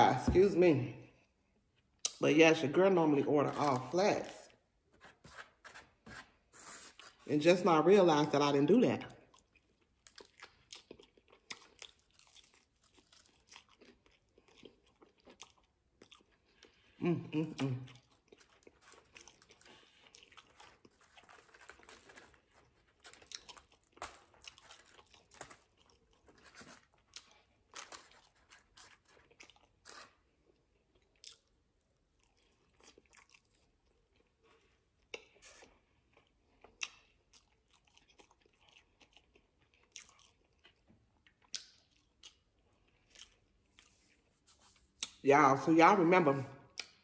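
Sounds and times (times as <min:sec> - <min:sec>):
chewing and crunching food: 0:08.3 - 0:45.2, 0:46.5 - 0:47.0.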